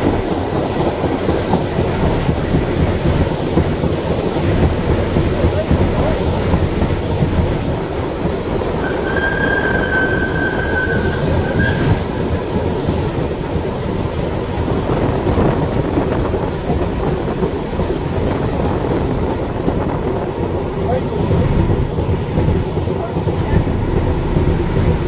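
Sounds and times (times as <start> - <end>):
train rumbling on rails: 0.0 - 25.0
high-pitched wheel squeal: 8.8 - 12.4.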